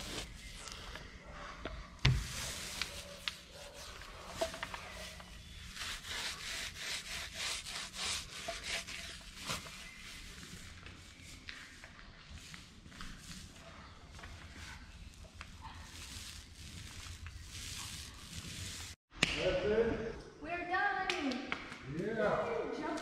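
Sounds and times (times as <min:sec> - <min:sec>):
paint roller scrubbing on hull: 0:02.5 - 0:11.7, 0:12.3 - 0:19.0.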